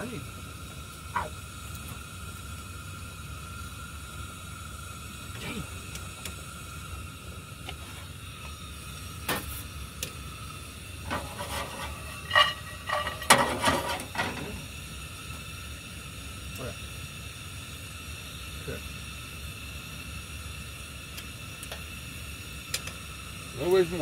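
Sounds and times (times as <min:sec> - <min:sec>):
camp stove burner hissing: 0:00.0 - 0:24.0
cookware and utensils clattering: 0:11.1 - 0:14.5.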